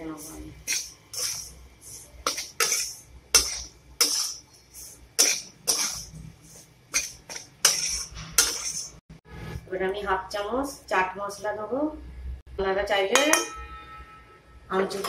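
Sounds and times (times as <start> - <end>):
spatula scraping metal pan: 0.6 - 9.0.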